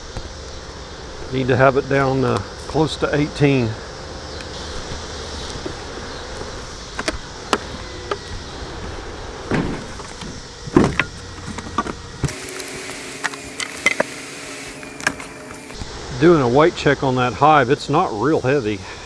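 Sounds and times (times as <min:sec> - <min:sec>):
steady hiss: 0:00.0 - 0:19.0
loud thuds: 0:09.4 - 0:12.4.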